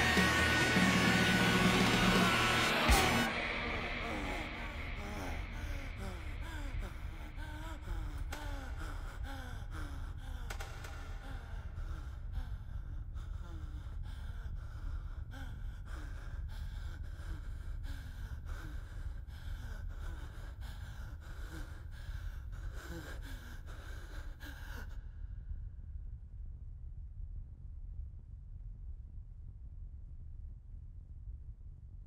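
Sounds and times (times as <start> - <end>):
man panting hard: 0.0 - 12.5
steady low rumble: 0.0 - 32.0.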